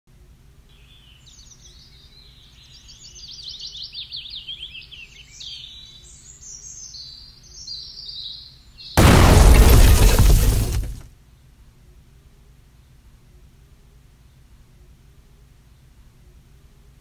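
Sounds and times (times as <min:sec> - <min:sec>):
small birds chirping: 0:00.7 - 0:09.0.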